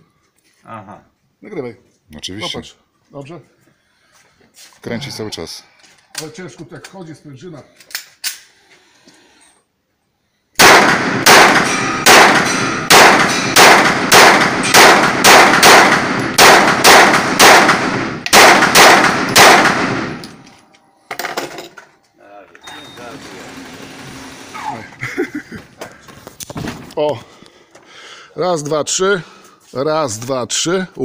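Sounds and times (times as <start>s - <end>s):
pistol shots echoing indoors: 10.6s - 20.2s.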